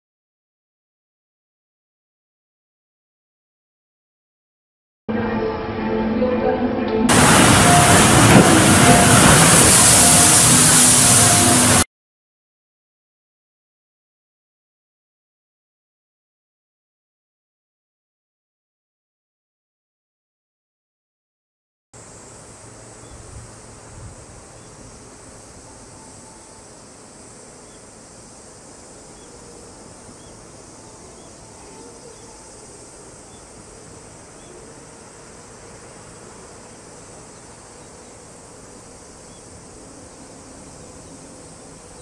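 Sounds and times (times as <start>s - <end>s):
insects buzzing drone: 7.1s - 11.8s, 22.0s - 42.0s.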